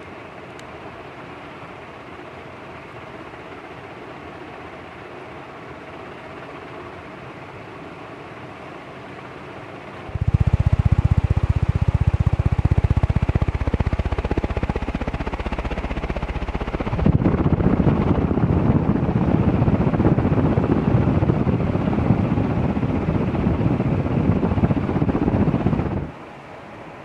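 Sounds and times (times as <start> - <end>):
ceiling fan running: 0.0 - 27.0.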